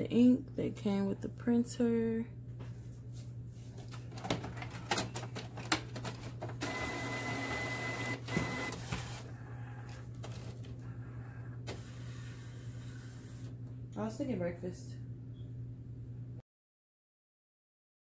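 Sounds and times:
printer motor whine: 0:06.5 - 0:13.5.

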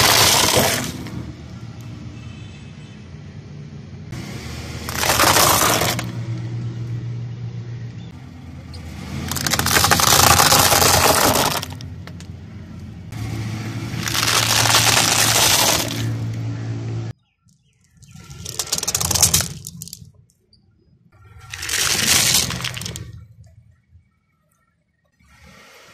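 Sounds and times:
tyre crushing brittle objects: 0:00.0 - 0:01.0, 0:04.8 - 0:06.2, 0:09.1 - 0:12.3, 0:14.0 - 0:16.2, 0:17.9 - 0:20.0, 0:21.4 - 0:23.3
car engine humming: 0:03.6 - 0:17.2.

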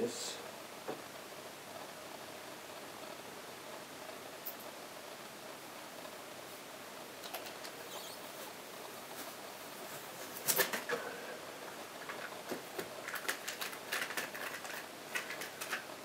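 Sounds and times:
plastic power board rustling and clattering: 0:10.2 - 0:11.0, 0:12.0 - 0:15.9.

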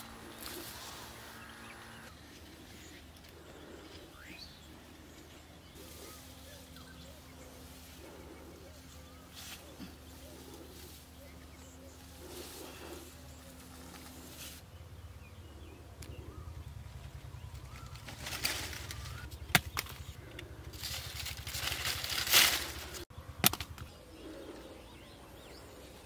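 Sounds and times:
leaves and vines rustling: 0:00.0 - 0:14.8, 0:17.2 - 0:23.1
doves cooing: 0:00.0 - 0:26.0
low steady rumble: 0:00.0 - 0:26.0.

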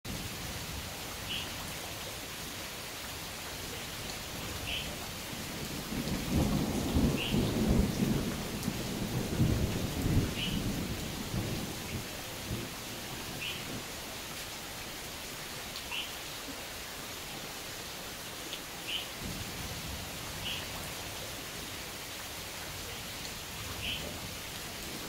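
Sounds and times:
steady rain: 0:00.0 - 0:25.0
thunder rumbling: 0:05.4 - 0:13.9.

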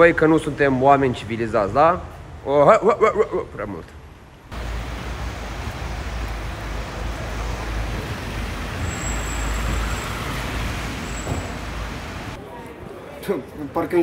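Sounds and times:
road traffic rumble: 0:00.0 - 0:13.7.

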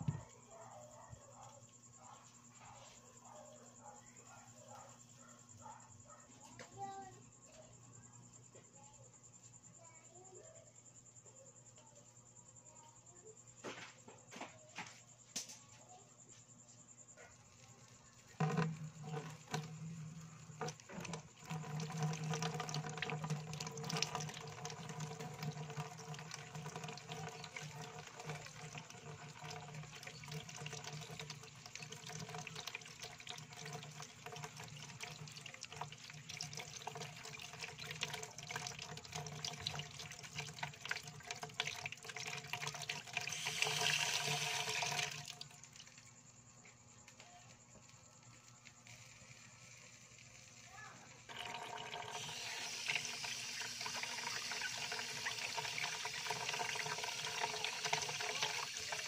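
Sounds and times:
tap water running into basin: 0:00.0 - 0:00.2, 0:18.1 - 0:46.3, 0:48.8 - 0:59.0
splashing while rinsing: 0:18.4 - 0:46.0, 0:51.3 - 0:59.0.

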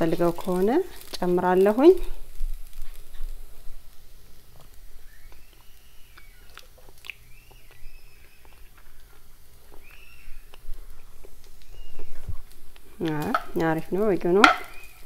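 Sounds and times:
person chewing food: 0:04.5 - 0:13.2.

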